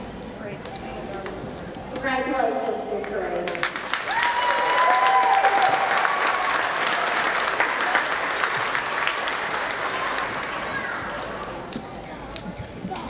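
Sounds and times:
audience applauding: 0:03.5 - 0:11.8.

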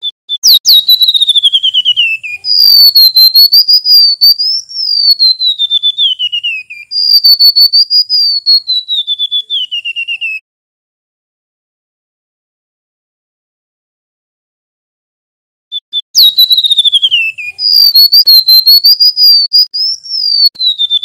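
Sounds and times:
bird singing high whistled notes: 0:00.0 - 0:10.4, 0:15.7 - 0:21.0.

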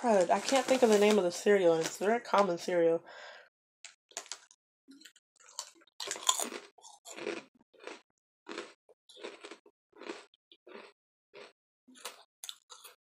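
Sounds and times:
person chewing crunchy crackers: 0:04.1 - 0:13.0.

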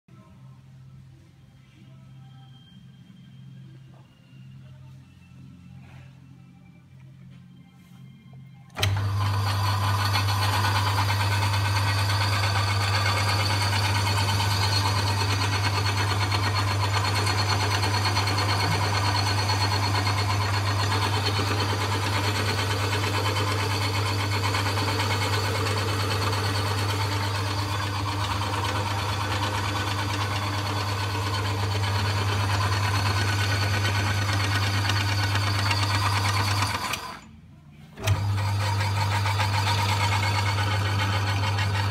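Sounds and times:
lathe motor humming: 0:08.7 - 0:37.3, 0:38.0 - 0:41.9.

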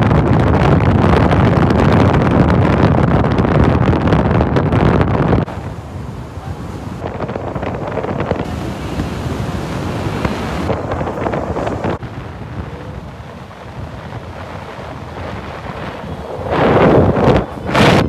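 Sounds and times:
wind rushing over microphone: 0:00.0 - 0:18.0
low driving noise: 0:05.4 - 0:18.0.

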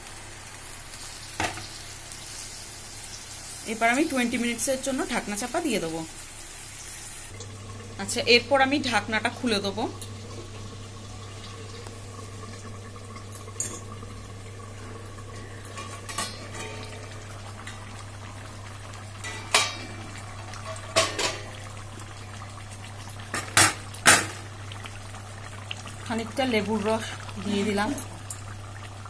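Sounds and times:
sauce simmering and bubbling: 0:06.2 - 0:29.0.

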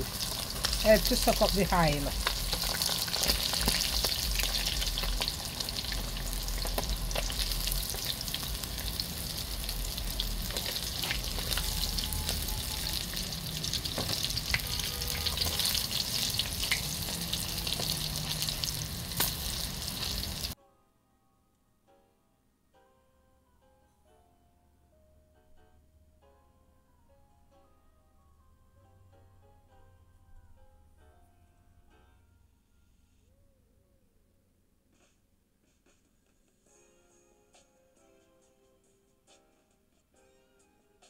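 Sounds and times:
fish frying in hot oil: 0:00.0 - 0:20.6
faint music: 0:00.0 - 0:41.0.

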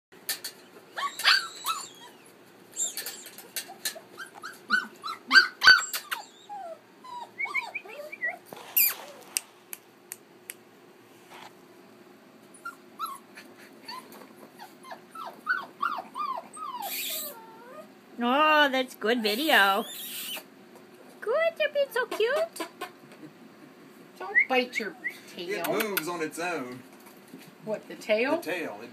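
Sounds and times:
puppies yipping and whining: 0:00.6 - 0:09.4, 0:12.5 - 0:18.0, 0:19.3 - 0:20.5.

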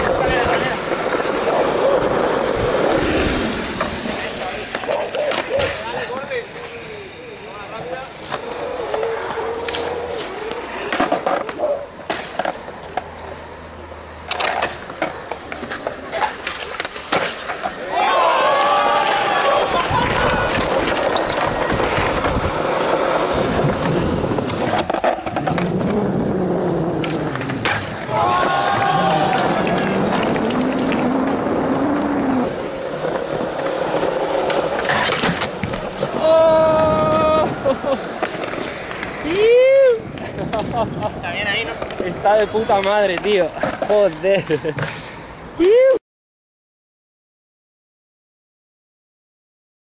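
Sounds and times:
skateboards clacking on ground: 0:00.0 - 0:13.5, 0:14.2 - 0:45.7
skateboard wheels rolling on concrete: 0:00.0 - 0:46.0.

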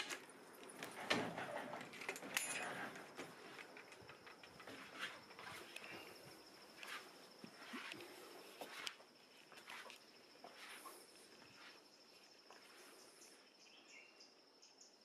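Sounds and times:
soft clicks and rustles: 0:00.0 - 0:11.8
cricket trilling: 0:00.1 - 0:15.0
bird-like chirps: 0:11.6 - 0:15.0.

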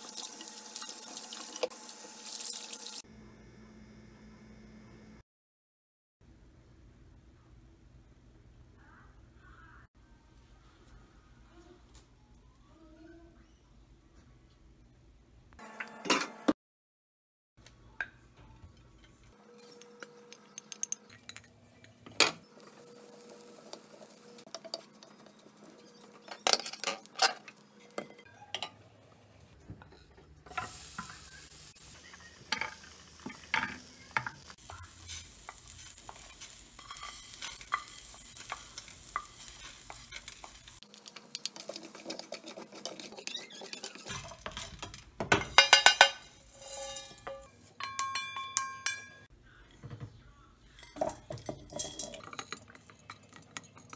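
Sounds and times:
spices sizzling in a pan: 0:00.0 - 0:03.1, 0:22.4 - 0:26.3, 0:30.5 - 0:47.4
plate and spoon clinks: 0:45.3 - 0:49.3.

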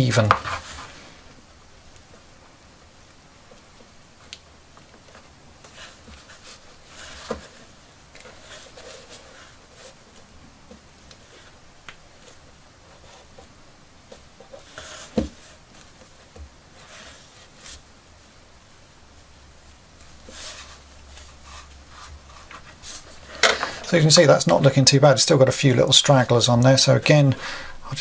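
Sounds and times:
light scratching: 0:05.1 - 0:13.5.

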